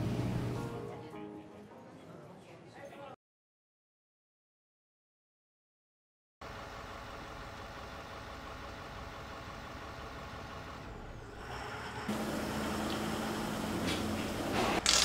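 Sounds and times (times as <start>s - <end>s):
large engine droning: 6.4s - 14.8s.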